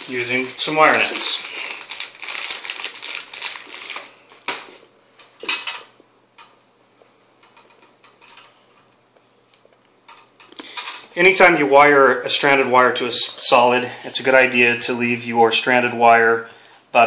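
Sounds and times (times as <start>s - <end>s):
plastic bag crinkling and rattling: 0.0s - 4.8s.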